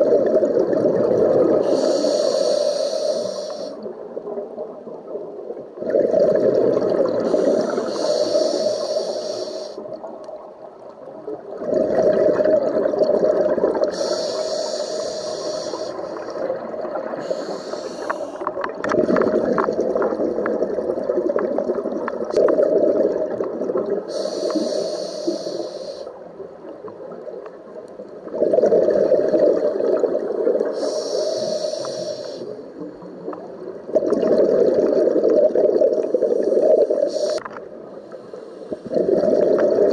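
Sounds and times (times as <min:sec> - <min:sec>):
exhaled bubbles rushing: 0:00.0 - 0:01.7, 0:05.6 - 0:08.0, 0:11.3 - 0:14.0, 0:16.1 - 0:17.3, 0:18.4 - 0:24.2, 0:28.2 - 0:30.8, 0:33.1 - 0:37.1, 0:38.8 - 0:39.9
regulator inhalation hiss: 0:01.6 - 0:03.9, 0:07.2 - 0:09.8, 0:13.9 - 0:16.4, 0:17.2 - 0:18.5, 0:24.1 - 0:26.2, 0:30.7 - 0:32.7, 0:36.0 - 0:38.9.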